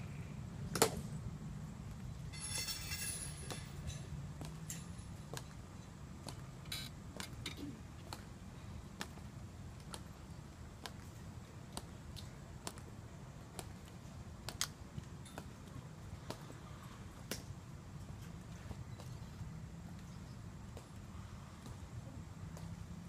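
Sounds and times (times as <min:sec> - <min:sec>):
hard-soled footsteps clicking: 0:06.2 - 0:08.3.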